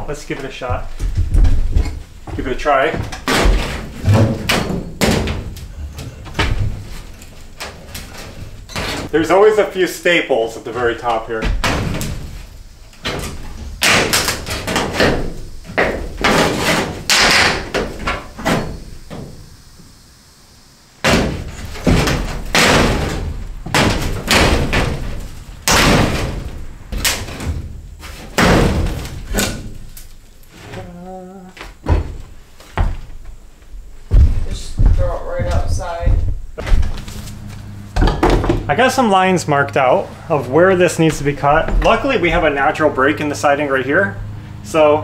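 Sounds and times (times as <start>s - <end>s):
metal siding banging and clattering: 0.7s - 9.6s, 10.6s - 19.4s, 21.0s - 30.2s, 37.9s - 39.1s.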